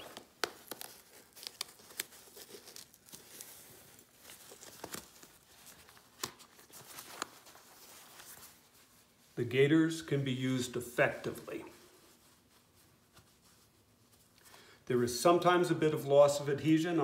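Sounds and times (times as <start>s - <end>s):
fabric rustling: 0.0s - 9.4s, 11.0s - 14.4s.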